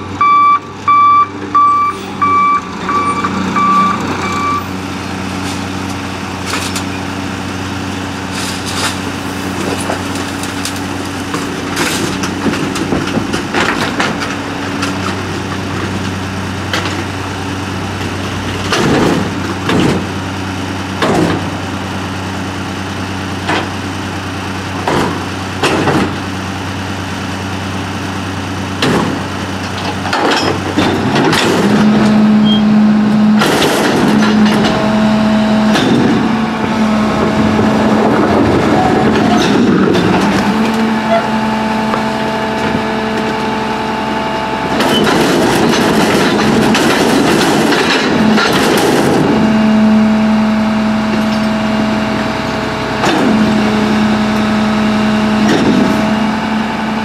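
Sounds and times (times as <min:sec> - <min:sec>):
garbage truck engine revving: 0:00.0 - 0:57.0
trash crashing into hopper: 0:33.2 - 0:36.4, 0:44.8 - 0:49.5.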